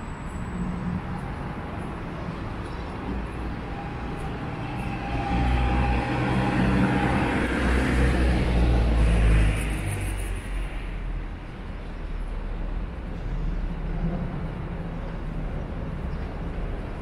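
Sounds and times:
vehicle driving past: 0:03.6 - 0:10.1.

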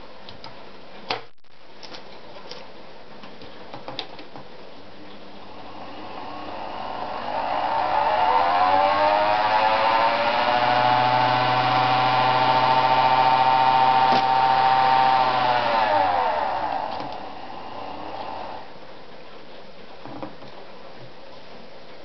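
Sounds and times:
sewing machine motor whine: 0:05.5 - 0:18.7.

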